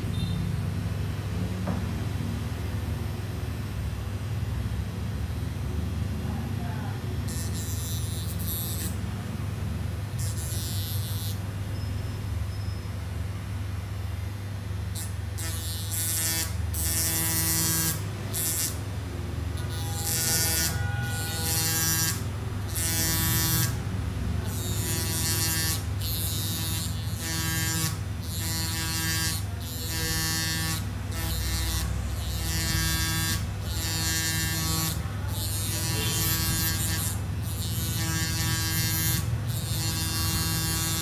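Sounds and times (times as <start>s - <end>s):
rotary tool grinding whine: 7.2s - 9.0s, 10.2s - 11.5s, 14.9s - 18.8s, 19.6s - 23.8s, 24.4s - 41.0s.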